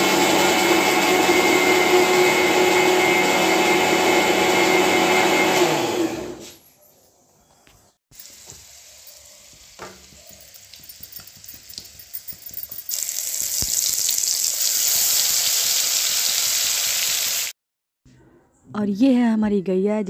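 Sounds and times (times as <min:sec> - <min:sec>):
oil crackling and spitting: 0:08.2 - 0:17.5
spice paste sizzling in hot oil: 0:08.2 - 0:17.5.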